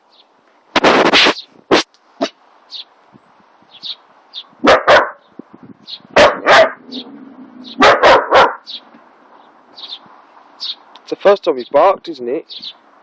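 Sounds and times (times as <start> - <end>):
dog barking: 4.6 - 5.2, 6.2 - 7.1, 7.8 - 8.7.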